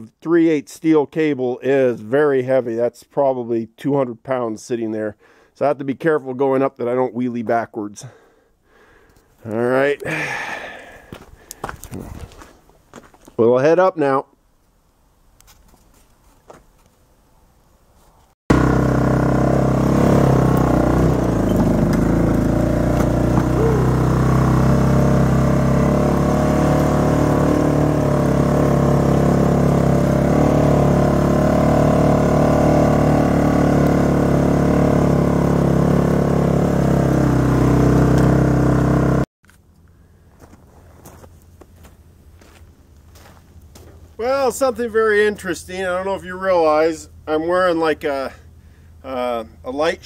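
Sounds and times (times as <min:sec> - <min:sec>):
atv engine running under load: 0:18.5 - 0:40.5.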